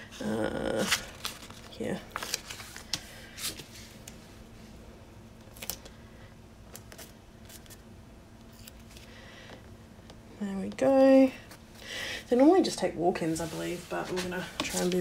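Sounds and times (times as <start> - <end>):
sticker sheets rustling: 13.4 - 15.0.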